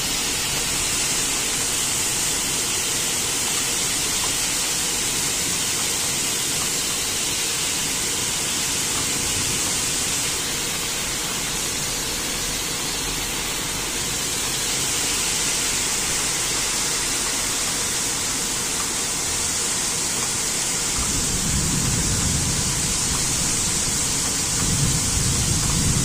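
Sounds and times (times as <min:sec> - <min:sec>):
heavy rain pouring: 0:00.0 - 0:26.0
low thunder rumble: 0:20.9 - 0:26.0.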